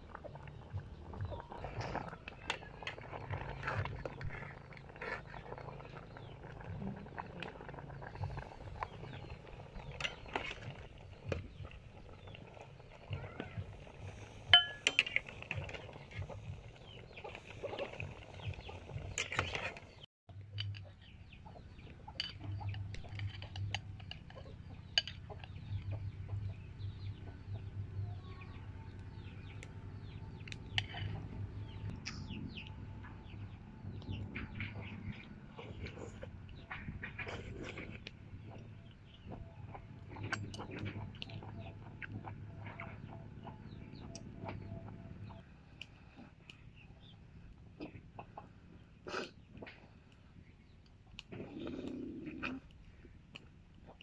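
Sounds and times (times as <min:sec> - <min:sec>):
chickens clucking: 0:00.2 - 0:20.1, 0:34.1 - 0:45.4, 0:47.8 - 0:50.0
spoon clinking on ceramic bowl: 0:14.6 - 0:15.2.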